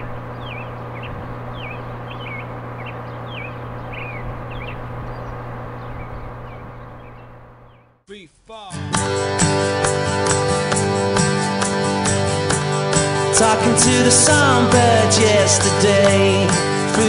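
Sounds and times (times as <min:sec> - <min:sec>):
songbird chirping: 0:00.0 - 0:08.0
steady low hum: 0:00.0 - 0:08.0.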